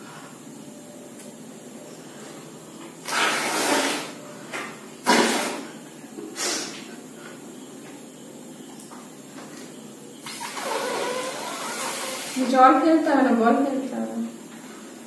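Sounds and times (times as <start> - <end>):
person blowing puffs of breath: 6.4 - 6.8.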